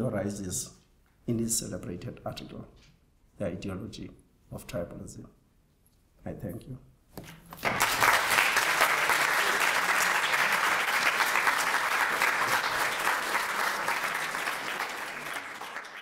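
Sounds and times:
audience applauding: 0:07.6 - 0:16.0.

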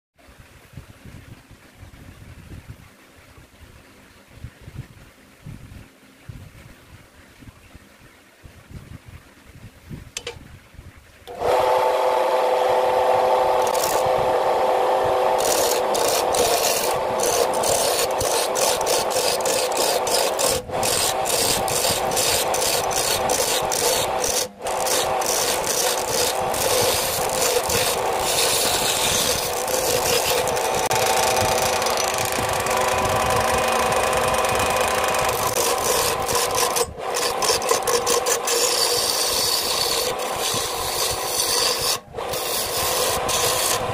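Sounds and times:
lathe humming: 0:11.3 - 0:43.9
chisel rasping on wood: 0:13.2 - 0:14.2, 0:14.9 - 0:43.9.

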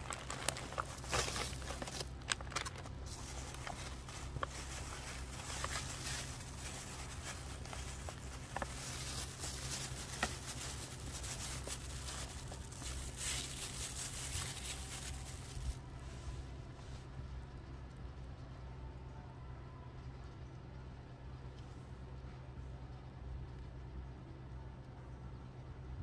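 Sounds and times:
plastic bag crinkling: 0:00.0 - 0:15.8.

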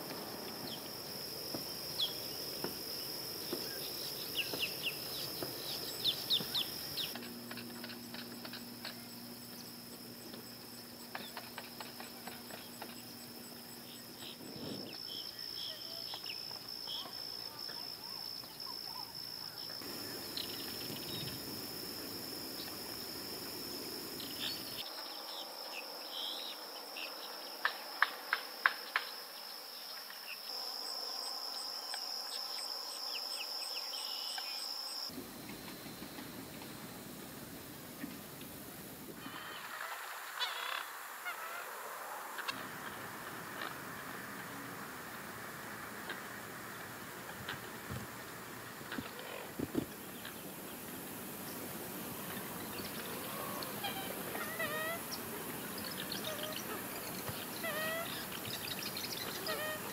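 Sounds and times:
sharp insect chirps: 0:00.0 - 0:37.2, 0:50.0 - 0:59.9
insects trilling: 0:00.0 - 0:59.9.

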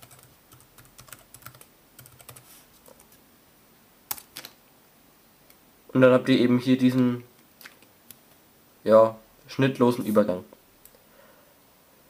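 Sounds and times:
laptop keyboard typing: 0:00.0 - 0:03.1, 0:04.1 - 0:04.5.

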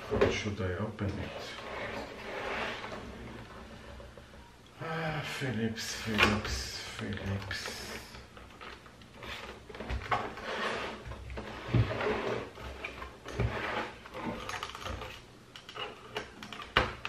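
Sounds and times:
plastic monitor scraping on desk: 0:01.2 - 0:04.1, 0:08.6 - 0:16.2.

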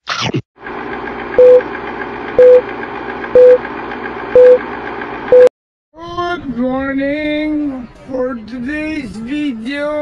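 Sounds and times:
short beeps: 0:01.4 - 0:01.6, 0:02.4 - 0:02.6, 0:03.4 - 0:03.6, 0:04.4 - 0:04.6, 0:05.3 - 0:05.5.

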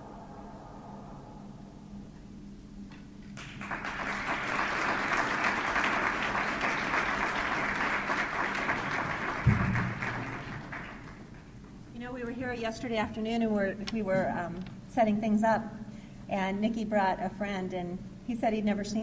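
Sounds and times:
audience applauding: 0:03.4 - 0:11.6
low thump: 0:09.4 - 0:10.0.

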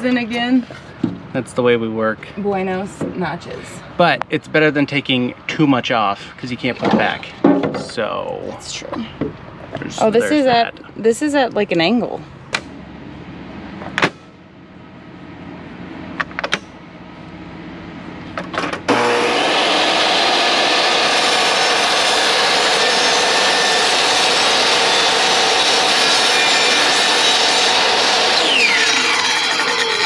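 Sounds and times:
table saw cutting plywood: 0:18.6 - 0:30.0.

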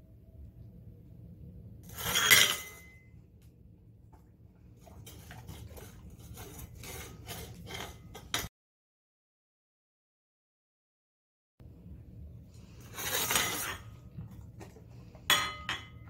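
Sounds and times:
plate clattering on tile floor: 0:01.9 - 0:03.0, 0:05.0 - 0:08.5, 0:13.0 - 0:14.0, 0:15.2 - 0:16.0.

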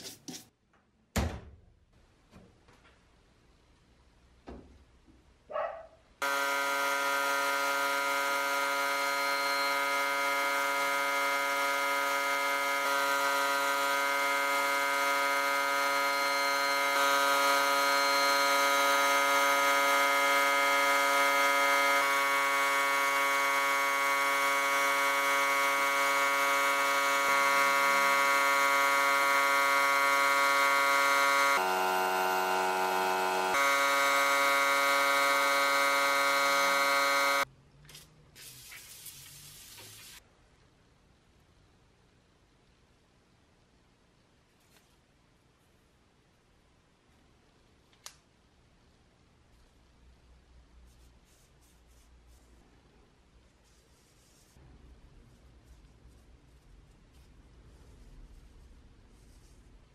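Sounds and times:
steady machine hum: 0:06.2 - 0:37.5.

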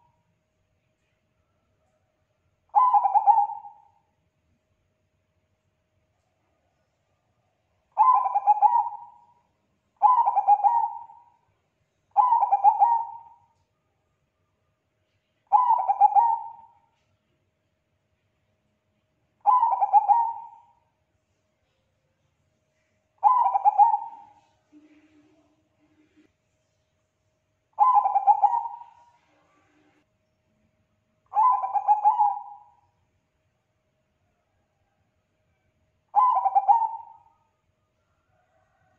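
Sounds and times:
dove cooing: 0:02.7 - 0:04.0, 0:08.0 - 0:09.3, 0:10.0 - 0:11.4, 0:12.1 - 0:13.5, 0:15.5 - 0:16.8, 0:19.4 - 0:20.8, 0:23.2 - 0:26.2, 0:27.8 - 0:29.6, 0:31.3 - 0:32.8, 0:36.1 - 0:37.4.

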